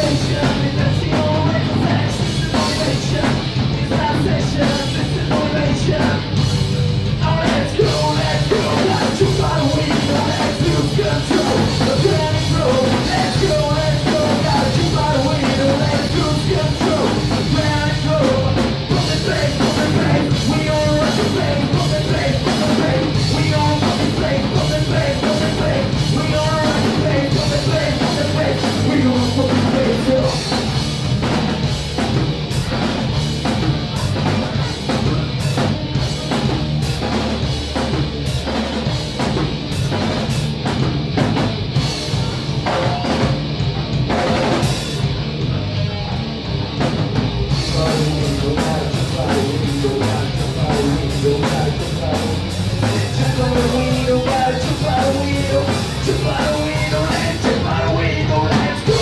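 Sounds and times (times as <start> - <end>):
drums and cymbals: 0.0 - 59.0
live rock band: 0.0 - 59.0
person singing: 7.2 - 30.7, 47.6 - 59.0.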